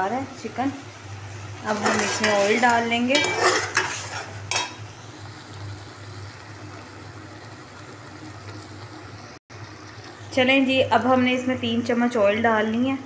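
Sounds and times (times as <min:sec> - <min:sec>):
curry simmering and bubbling: 0:00.8 - 0:11.1.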